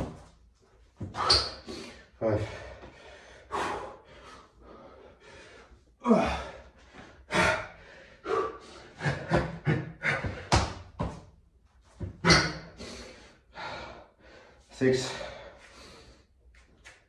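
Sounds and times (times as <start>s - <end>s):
person breathing hard: 1.2s - 10.7s, 12.7s - 16.4s.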